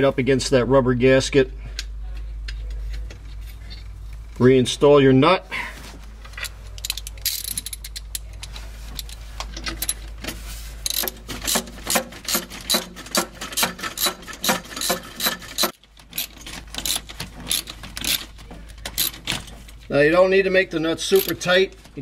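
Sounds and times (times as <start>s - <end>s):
ratchet wrench clicking: 6.8s - 9.1s, 10.8s - 19.3s, 21.1s - 21.4s.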